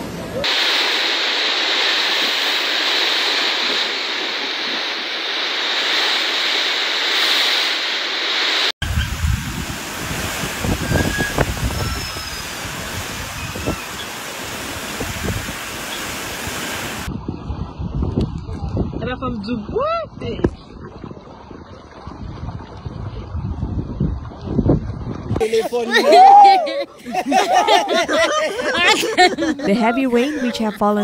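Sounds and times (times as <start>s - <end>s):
heavy rain hissing: 0.0s - 17.1s
wind buffeting the microphone: 8.8s - 25.4s.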